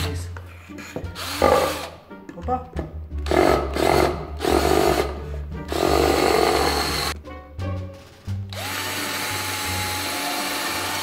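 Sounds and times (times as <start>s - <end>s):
cordless drill boring into wood: 1.2s - 1.9s, 3.3s - 5.1s, 5.7s - 7.1s, 8.5s - 11.0s.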